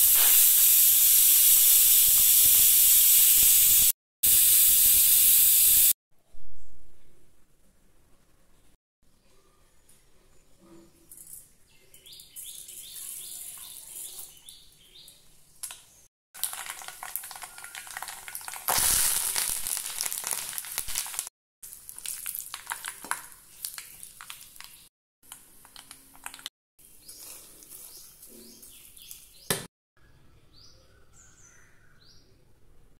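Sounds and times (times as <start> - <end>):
seeds crackling in hot oil: 0.0 - 6.0, 15.6 - 29.5.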